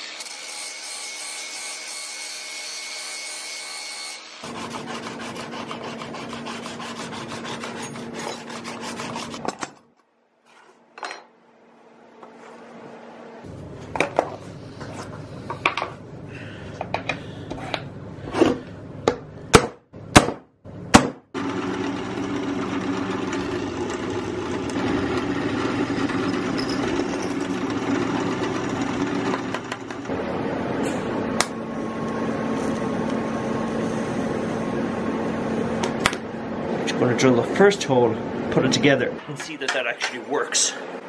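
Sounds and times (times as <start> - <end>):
power tool motor running: 21.4 - 30.1
metal parts clinking: 26.2 - 27.6.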